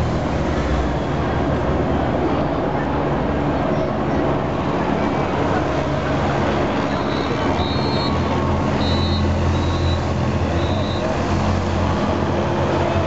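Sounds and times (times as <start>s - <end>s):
high-pitched whistle blasts: 6.9s - 8.2s, 8.8s - 10.0s.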